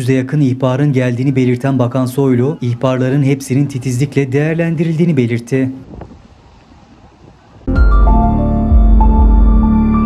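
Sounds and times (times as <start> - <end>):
ambient music with deep bass: 7.7 - 10.0.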